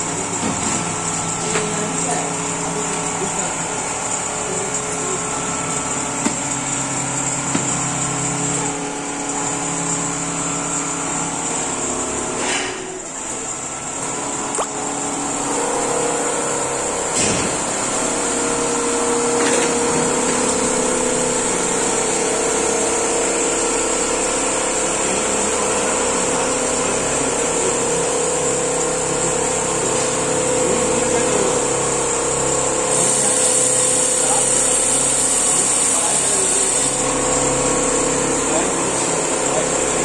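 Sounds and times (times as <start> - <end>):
quilting machine stitching: 32.9 - 37.4.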